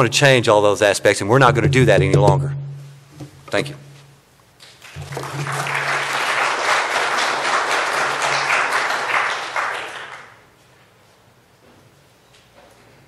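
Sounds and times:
audience applauding: 4.6 - 10.5.

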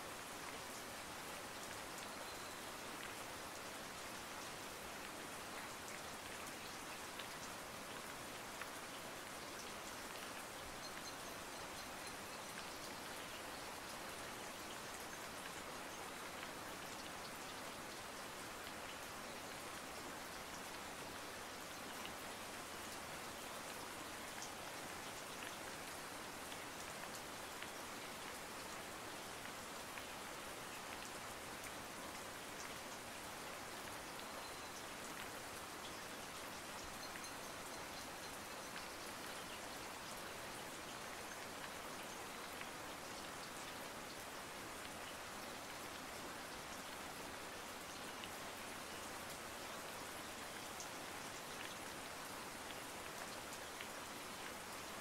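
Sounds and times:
steady rain hiss: 0.0 - 55.0
faint raindrop ticks: 0.5 - 55.0.

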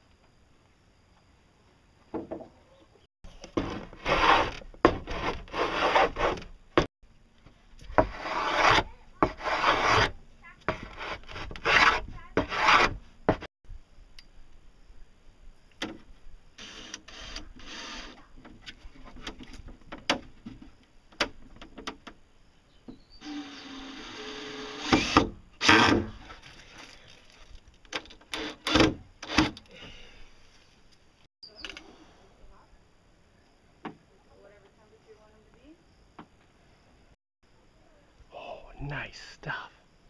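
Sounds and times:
wood rubbing and scraping: 3.3 - 13.5, 16.6 - 20.8.

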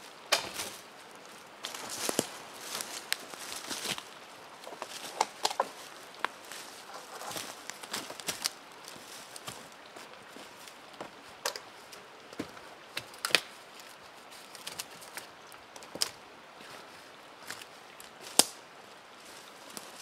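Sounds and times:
twigs cracking: 0.0 - 0.9, 1.6 - 16.2, 17.4 - 18.6
footsteps in dry leaves: 0.0 - 15.4.

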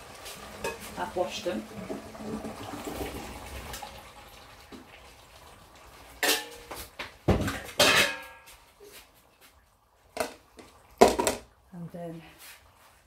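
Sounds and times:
metal pot clanking: 0.6 - 2.0, 6.2 - 8.6, 10.1 - 11.5.

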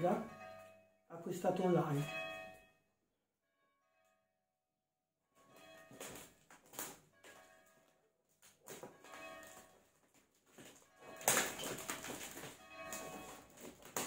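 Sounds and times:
church bells ringing: 0.0 - 2.9, 5.5 - 6.2, 7.2 - 8.0, 8.9 - 10.0, 10.8 - 14.0.

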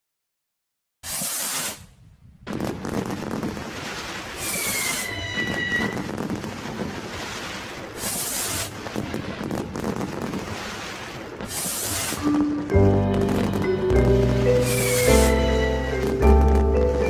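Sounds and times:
short bursts of hiss: 1.0 - 1.9, 7.9 - 8.9, 10.7 - 12.4, 14.5 - 15.5
fireworks crackling: 1.0 - 17.0
falling whistle: 4.4 - 6.1, 14.6 - 16.1.

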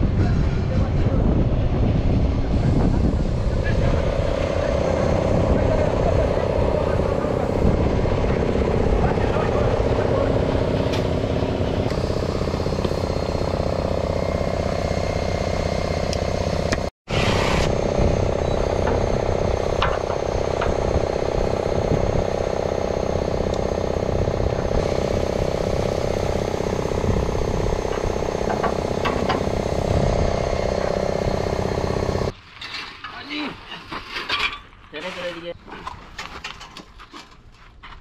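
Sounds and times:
engine running steadily: 0.0 - 32.4.

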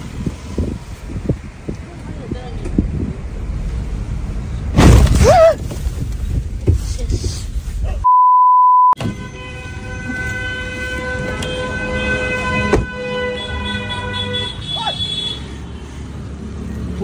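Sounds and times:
test tone beep: 8.0 - 9.0.

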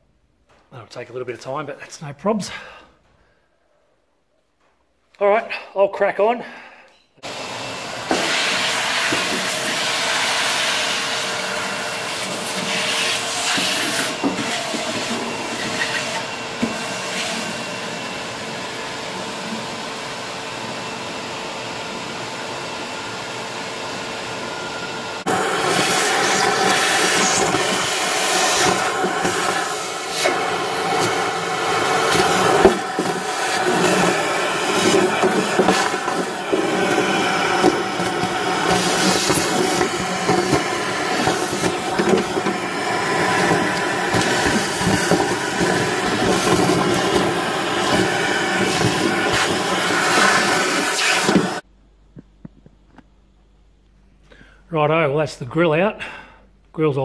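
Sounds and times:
shop vacuum whine and hiss: 7.2 - 51.6.

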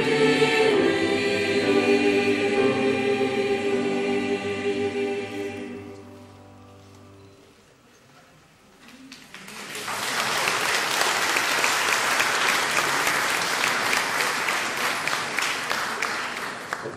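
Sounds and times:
audience applause: 9.1 - 16.9.

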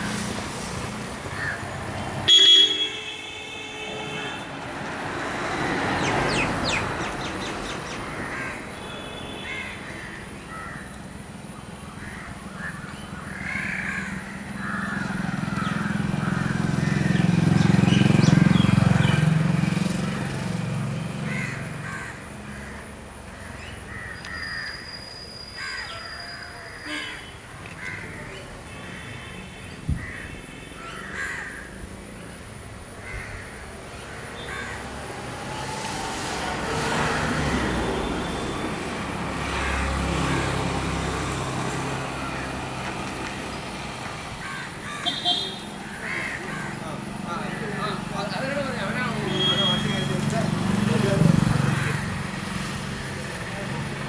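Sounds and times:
crows cawing: 1.3 - 1.7, 8.1 - 8.8, 9.4 - 11.0, 12.0 - 17.3, 21.2 - 24.8, 25.6 - 29.3, 30.0 - 31.8, 33.0 - 35.2, 39.4 - 40.6, 44.4 - 48.0, 51.5 - 52.5.

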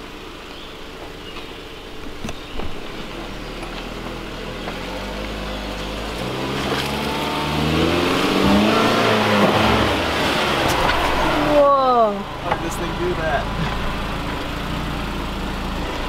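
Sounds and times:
suv engine revving: 0.0 - 16.0.

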